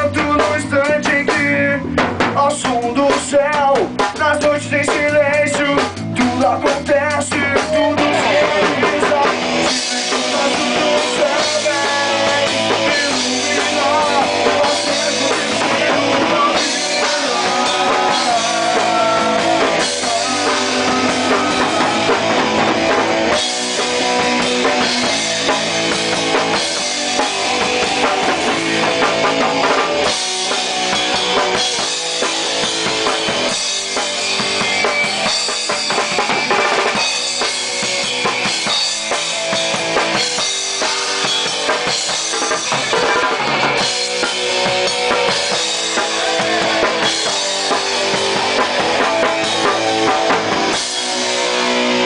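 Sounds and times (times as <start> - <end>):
drum kit: 0.0 - 52.0
electric bass: 0.0 - 52.0
electric guitar: 0.0 - 52.0.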